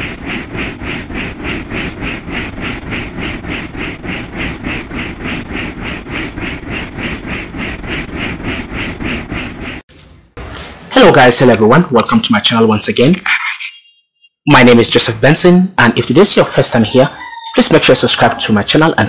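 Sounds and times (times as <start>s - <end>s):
helicopter rotor thudding: 0.0s - 9.9s.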